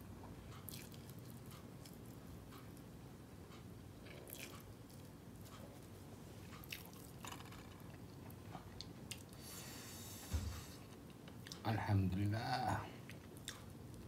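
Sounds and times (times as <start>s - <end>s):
person chewing: 0.6s - 2.1s, 4.0s - 5.6s, 6.4s - 9.4s, 13.0s - 14.0s.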